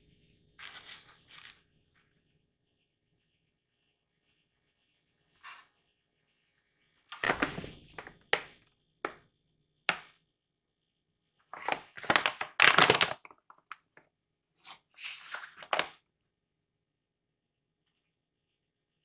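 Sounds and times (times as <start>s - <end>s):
seeds spilling into glass bowl: 0.6s - 1.6s
plastic pouch crinkling: 11.6s - 13.8s, 15.2s - 16.0s.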